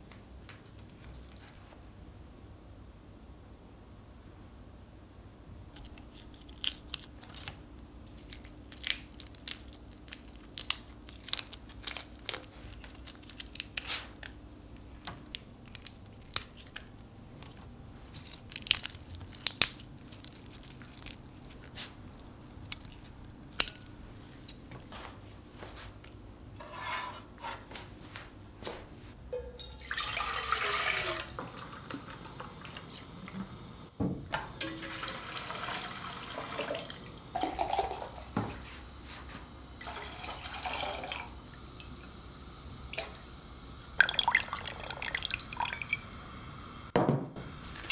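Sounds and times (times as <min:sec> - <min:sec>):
scissors cutting shrimp shells: 0:22.7 - 0:23.9
liquid pouring: 0:29.4 - 0:32.9, 0:34.4 - 0:38.4, 0:39.8 - 0:42.0, 0:44.0 - 0:46.1.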